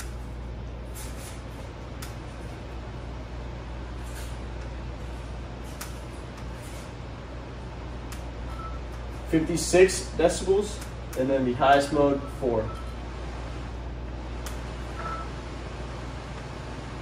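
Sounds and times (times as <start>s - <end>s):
fan rush of air: 0.0s - 17.0s.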